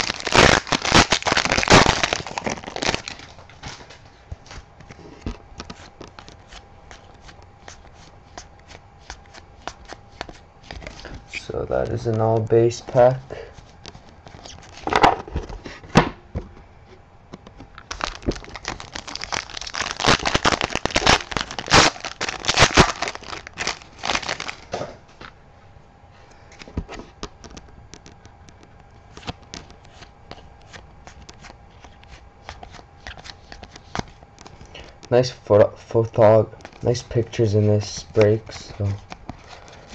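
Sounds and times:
trading cards clicking and rustling: 4.5s - 15.6s, 26.5s - 35.3s, 36.0s - 39.9s.

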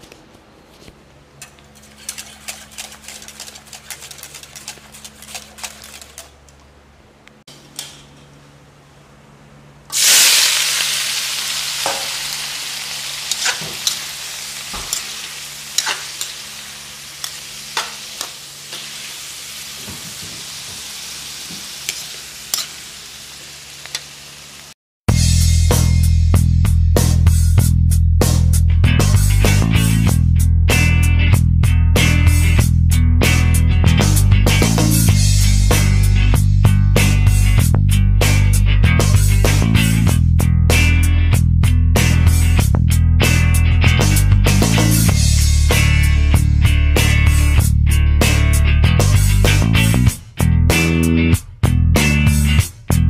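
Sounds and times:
metal spatula clinking and scraping: 1.4s - 4.0s, 13.3s - 14.1s, 14.9s - 15.2s, 15.8s - 16.4s, 21.9s - 22.8s
vegetables sizzling in a wok: 9.9s - 24.8s.

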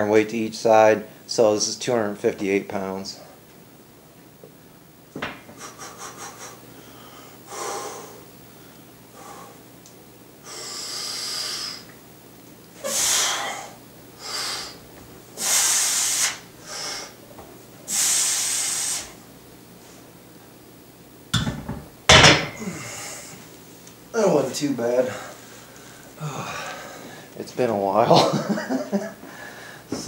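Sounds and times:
man breathing hard: 5.6s - 9.7s, 10.4s - 11.9s, 12.8s - 14.8s, 15.4s - 17.2s, 22.6s - 23.5s, 25.0s - 27.3s, 29.2s - 30.0s.

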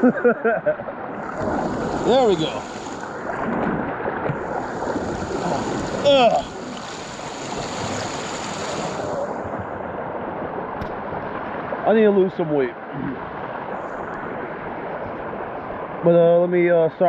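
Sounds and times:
creek water rushing and splashing: 0.9s - 16.8s
person exclaiming: 5.4s - 6.6s.

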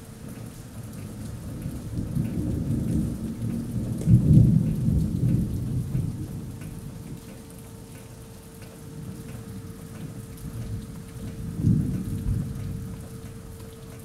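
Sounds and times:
steady rain: 0.0s - 14.0s
rolling thunder: 1.8s - 7.0s, 11.4s - 13.0s.

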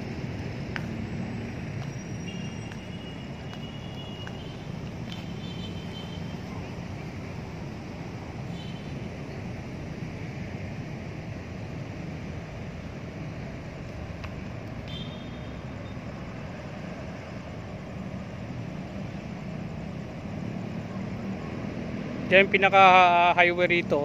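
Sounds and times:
distant road traffic rumble: 0.0s - 24.0s.

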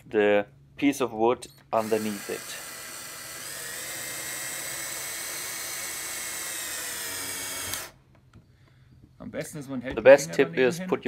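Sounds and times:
cordless drill motor whine: 1.6s - 8.0s.

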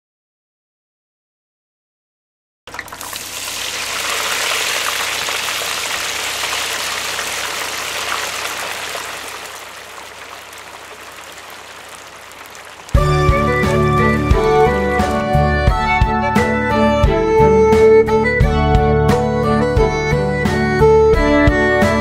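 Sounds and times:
hot oil sizzling in a pan: 2.7s - 13.2s.

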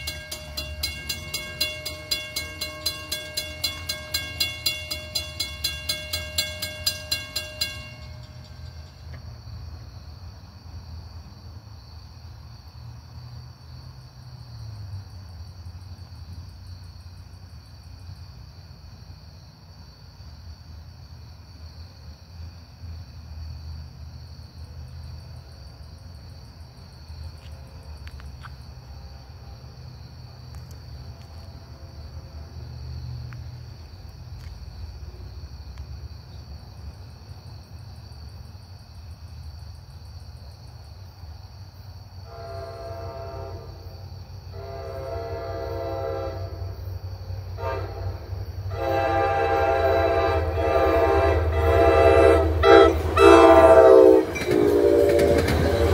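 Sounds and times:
low train rumble: 0.0s - 55.9s
train horn blasts: 42.2s - 43.9s, 44.5s - 46.9s, 47.5s - 55.9s.

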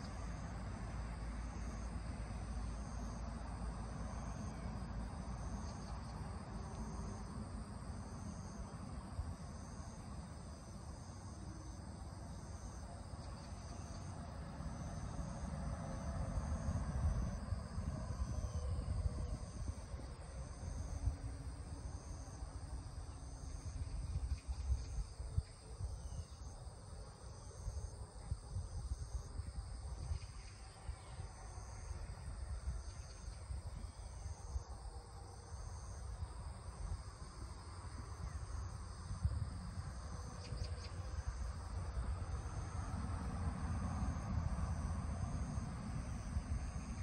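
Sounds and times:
steady low rumble: 0.0s - 27.1s
insects calling in pulses: 30.0s - 47.0s.

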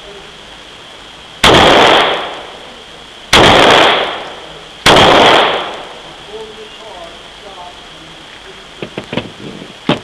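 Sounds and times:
pistol shots ringing indoors: 1.4s - 2.3s, 3.4s - 4.2s, 4.9s - 5.8s.

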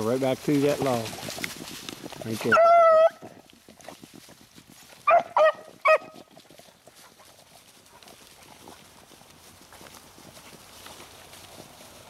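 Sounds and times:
paws rustling dry leaves: 0.0s - 12.0s
dog barking: 5.1s - 6.2s.

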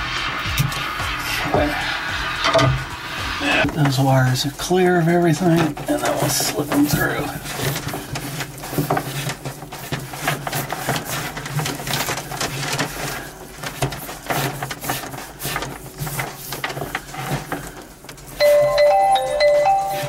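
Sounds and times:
background music: 0.0s - 3.8s
cables scraping and clicking: 0.0s - 18.4s.

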